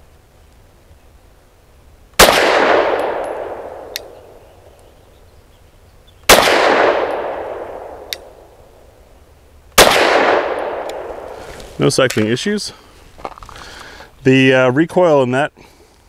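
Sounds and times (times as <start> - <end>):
pistol shots echoing: 2.2 - 4.4, 6.3 - 8.4, 9.8 - 11.3.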